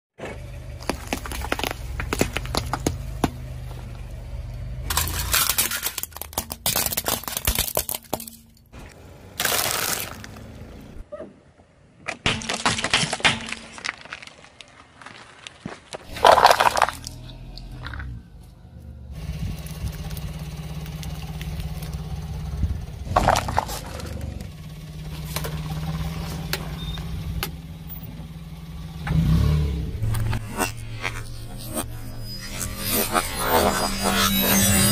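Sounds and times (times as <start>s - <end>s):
car engine running low: 0.2s - 6.5s, 16.1s - 34.9s
tyre crushing objects: 0.7s - 3.9s, 4.9s - 8.5s, 12.2s - 17.2s, 23.0s - 24.5s
sharp cracks and clinks: 4.5s - 8.7s
low rumble: 16.1s - 34.1s.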